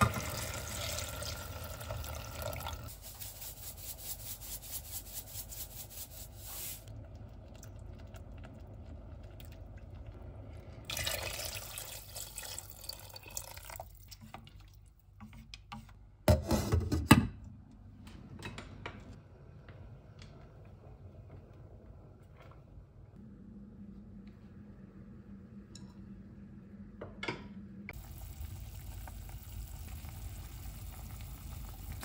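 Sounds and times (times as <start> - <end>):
water pouring into sauce: 0.0 - 2.9, 7.1 - 14.7.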